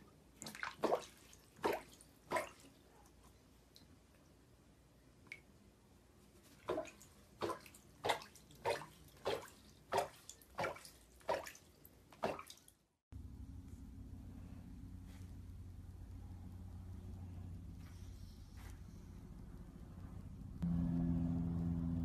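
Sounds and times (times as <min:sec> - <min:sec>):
water splashing in a bathtub: 0:00.0 - 0:04.4, 0:06.2 - 0:13.0
steady low hum: 0:13.2 - 0:22.0.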